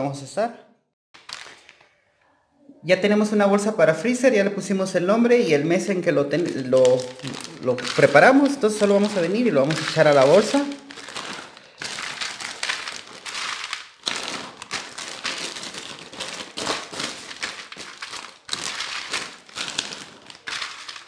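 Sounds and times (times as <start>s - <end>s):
plastic bag crinkling: 1.2s - 2.0s, 6.3s - 21.0s.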